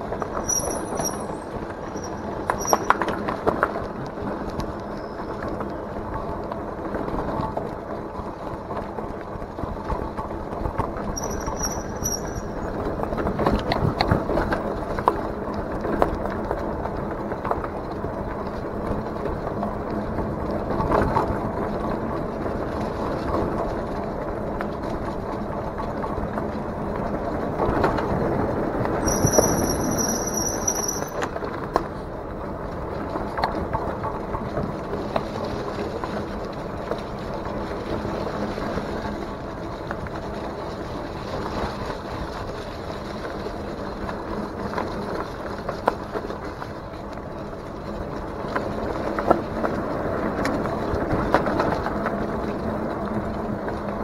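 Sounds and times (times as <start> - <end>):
bike rattles and clicks: 0.0 - 54.0
brief high squeal: 0.4 - 3.0, 11.2 - 12.7, 29.0 - 31.2.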